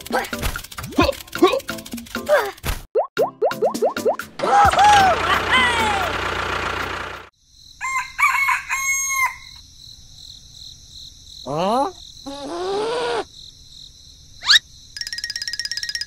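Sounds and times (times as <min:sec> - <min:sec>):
cartoon upward glide: 0:03.2 - 0:06.2
rooster crowing: 0:07.8 - 0:09.6.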